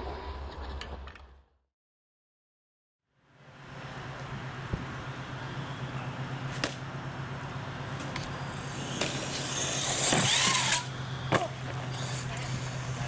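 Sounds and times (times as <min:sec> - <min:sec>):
toy truck motor whine: 0:08.4 - 0:13.0.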